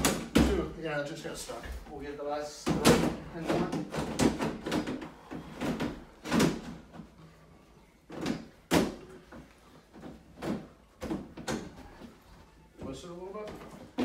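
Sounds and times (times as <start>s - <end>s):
clunks and knocks of rack sections: 2.6s - 7.1s.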